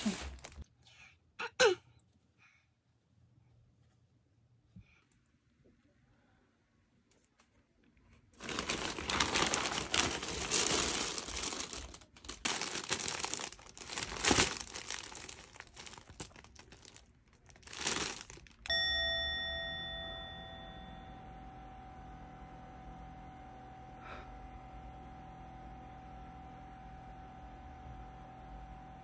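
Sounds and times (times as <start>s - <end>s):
plastic bags crinkling and tearing: 0.0s - 0.7s, 8.3s - 18.7s
bright ding: 18.7s - 21.5s.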